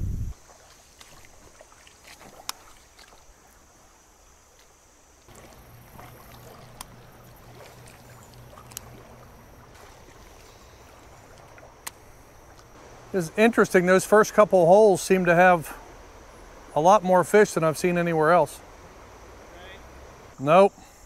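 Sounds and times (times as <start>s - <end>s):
stream water trickling over gravel: 0.3s - 20.4s
low steady hum: 5.3s - 21.0s.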